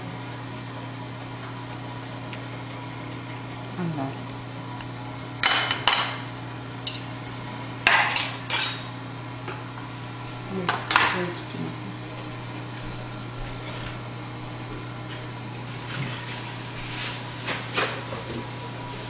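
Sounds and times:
steady low hum: 0:00.0 - 0:19.0
metal tongs clinking on china plates: 0:08.0 - 0:08.9.

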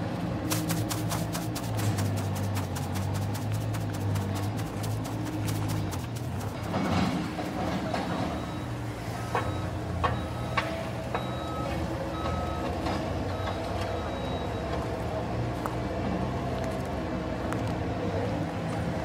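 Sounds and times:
diesel engine running: 0:00.0 - 0:14.0
backup alarm beeps: 0:07.9 - 0:14.9.

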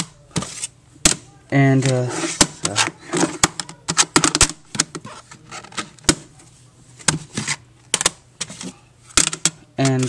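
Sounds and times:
plastic cases rubbing: 0:01.8 - 0:06.0
plastic cases clicking and knocking: 0:01.8 - 0:06.3, 0:07.0 - 0:10.0.

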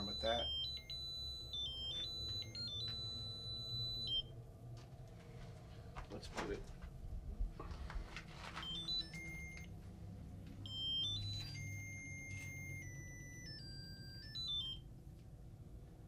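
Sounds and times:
electronic beeping tones: 0:00.0 - 0:04.3, 0:08.6 - 0:09.7, 0:10.7 - 0:14.8.

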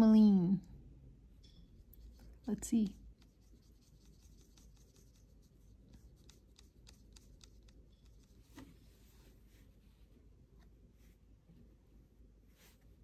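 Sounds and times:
brush stroking on paper: 0:01.8 - 0:10.1, 0:12.5 - 0:13.0.

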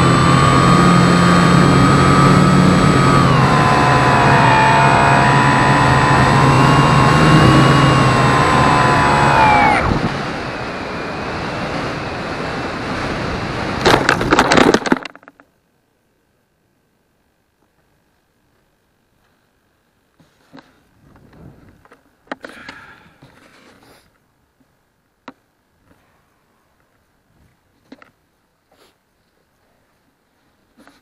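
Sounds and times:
model glider motor whine: 0:00.0 - 0:13.8
wind rush: 0:01.6 - 0:14.2
knocks and scrapes on grass: 0:20.2 - 0:22.5, 0:23.2 - 0:24.1, 0:30.4 - 0:31.0.

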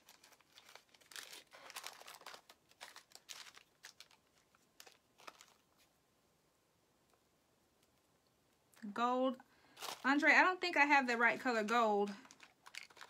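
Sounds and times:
plastic bags crinkling: 0:00.0 - 0:05.9, 0:09.7 - 0:10.7, 0:11.4 - 0:13.0.

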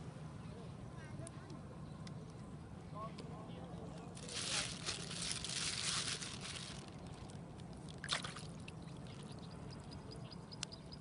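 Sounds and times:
water splashing and pouring: 0:04.3 - 0:08.9.

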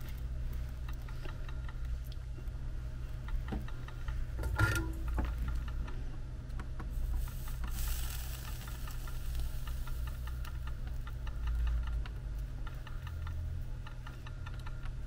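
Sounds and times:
faint regular ticking: 0:00.0 - 0:15.0
low electrical hum: 0:00.0 - 0:15.0
flux sizzling: 0:07.0 - 0:11.0.

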